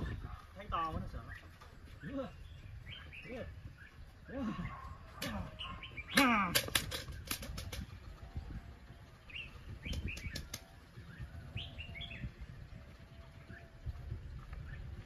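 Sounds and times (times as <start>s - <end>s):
low wind rumble: 0.0s - 15.0s
high bird chirps: 5.5s - 6.3s, 8.4s - 12.5s
sharp clicks: 6.1s - 8.0s, 9.8s - 10.7s.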